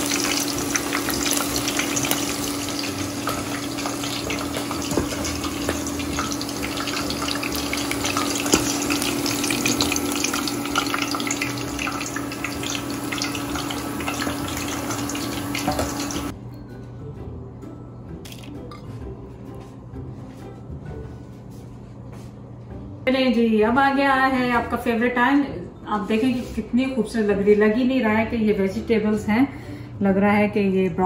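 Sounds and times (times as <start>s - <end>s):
hot oil sizzling and crackling: 0.0s - 16.3s.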